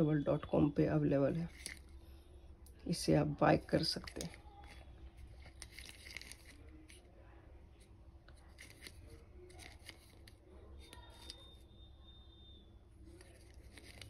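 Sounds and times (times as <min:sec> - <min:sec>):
plastic pill bottle handling clicks: 0:01.5 - 0:02.0.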